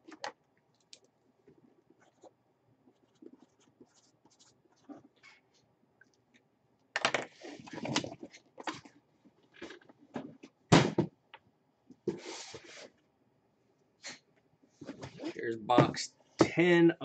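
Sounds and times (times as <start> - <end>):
cardboard boxes sliding and scraping: 12.1 - 12.9.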